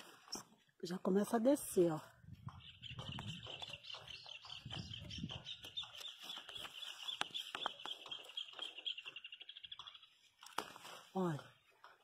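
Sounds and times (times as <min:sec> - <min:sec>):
leaves and stems rustling: 0:10.1 - 0:11.7.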